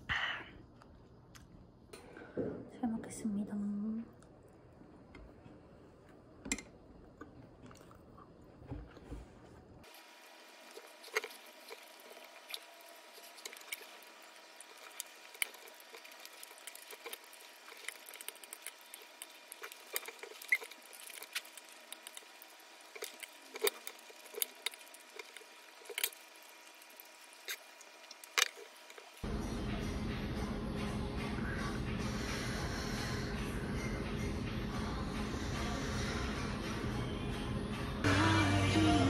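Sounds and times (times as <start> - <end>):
soft chewing: 7.0 - 9.9, 10.5 - 29.2.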